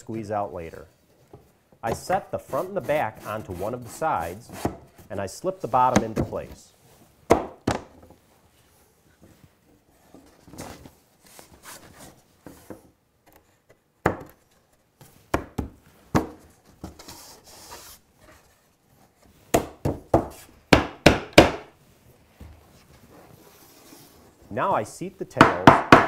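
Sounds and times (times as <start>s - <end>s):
sharp wooden knocks: 19.5s - 21.7s, 25.4s - 26.0s.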